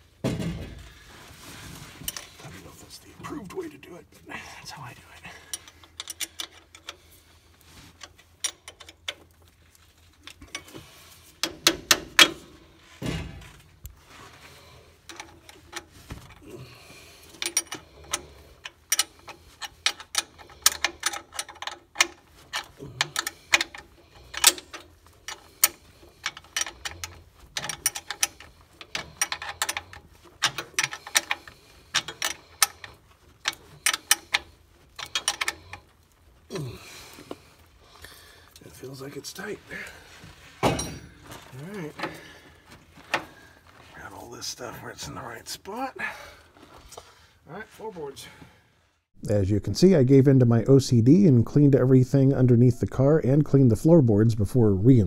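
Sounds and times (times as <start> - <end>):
wrench clicking on metal: 17.3 - 35.9.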